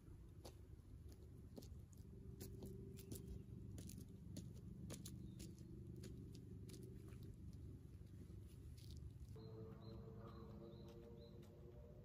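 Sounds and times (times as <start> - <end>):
low steady hum: 0.0 - 12.0
footsteps on bark and dry twigs: 1.0 - 9.4.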